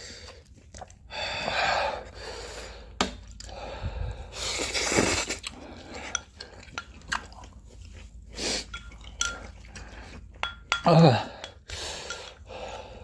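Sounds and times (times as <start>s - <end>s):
chewing: 0.0s - 2.2s, 4.3s - 12.8s
slurping noodles: 4.2s - 10.3s
chopsticks clicking on metal pot: 10.4s - 12.4s.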